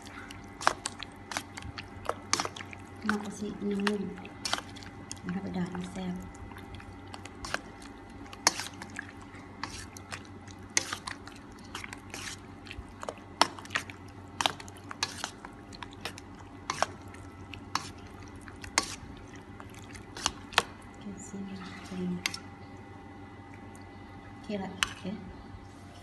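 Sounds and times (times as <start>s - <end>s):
wet clicks and smacks of mixing meat: 0.0s - 21.1s, 21.8s - 25.0s.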